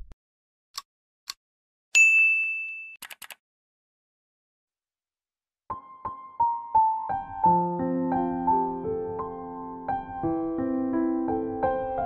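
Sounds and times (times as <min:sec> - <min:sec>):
soft piano music: 0:05.7 - 0:12.0.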